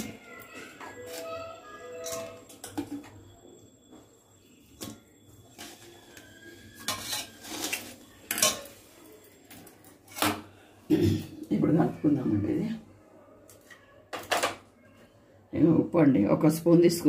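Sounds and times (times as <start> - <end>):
metal bowl and colander clinking: 0.0 - 3.3, 4.7 - 10.4.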